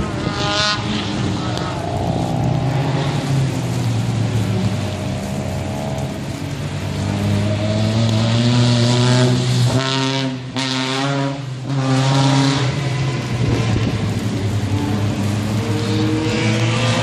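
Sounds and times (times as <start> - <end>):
race car engine drone: 0.0 - 17.0
race car accelerating past: 14.8 - 17.0.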